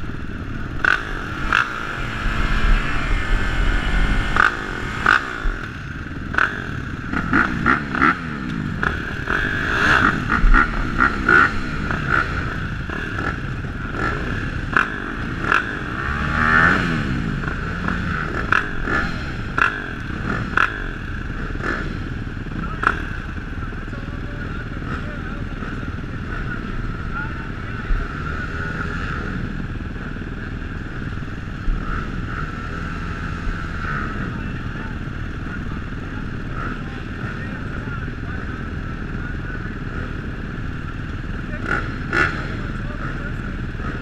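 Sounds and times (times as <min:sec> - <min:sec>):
sharp throttle revs: 0:00.0 - 0:23.2, 0:39.8 - 0:44.0
motocross bikes idling: 0:00.0 - 0:44.0.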